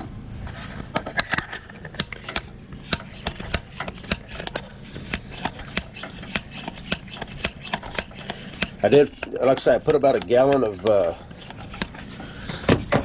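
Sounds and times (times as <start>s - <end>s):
hand pump clicking: 2.0s - 12.0s.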